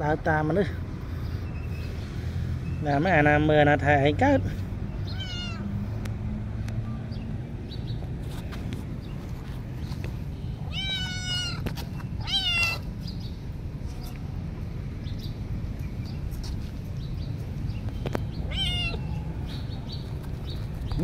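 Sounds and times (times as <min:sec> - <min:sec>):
cat meowing: 0:05.1 - 0:05.7, 0:10.7 - 0:12.9, 0:18.4 - 0:19.5.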